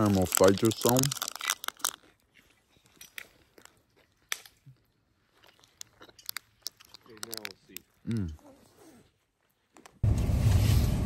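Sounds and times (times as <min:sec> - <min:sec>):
wrapper rustling: 0:00.0 - 0:02.2
person biting and chewing: 0:00.0 - 0:08.4
small crunching clicks: 0:00.0 - 0:08.4.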